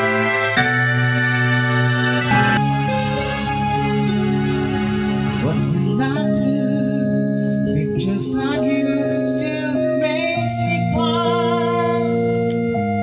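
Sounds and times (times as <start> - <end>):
backing track music: 0.0 - 13.0
man singing karaoke: 5.4 - 12.2.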